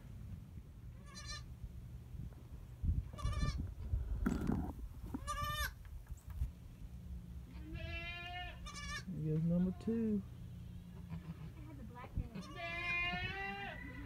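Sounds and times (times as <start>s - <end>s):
goat bleating: 1.0s - 1.5s, 3.2s - 3.6s, 5.1s - 5.8s, 7.5s - 10.0s, 11.0s - 14.0s.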